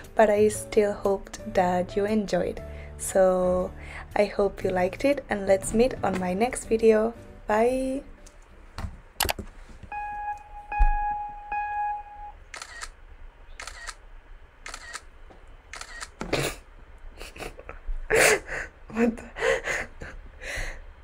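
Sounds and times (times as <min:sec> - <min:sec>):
countdown beeps: 0:09.9 - 0:12.4
camera shutter sounds: 0:12.5 - 0:14.0, 0:14.6 - 0:15.1, 0:15.7 - 0:16.2.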